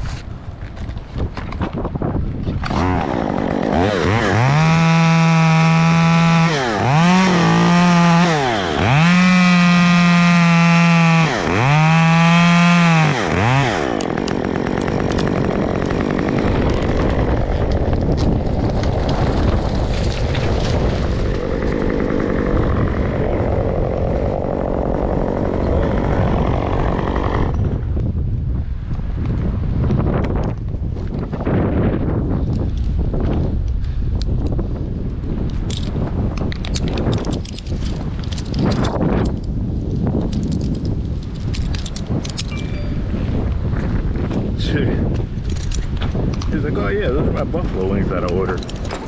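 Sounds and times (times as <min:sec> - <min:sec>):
wind noise on microphone: 0:00.0 - 0:49.0
chainsaw at full throttle: 0:02.6 - 0:27.8.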